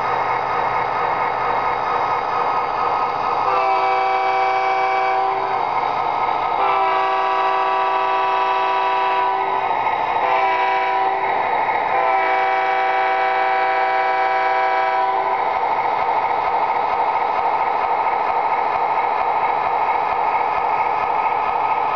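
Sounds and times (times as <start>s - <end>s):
model train running noise: 0.0s - 21.9s
model train diesel horn blasts: 3.4s - 5.6s, 6.6s - 15.5s.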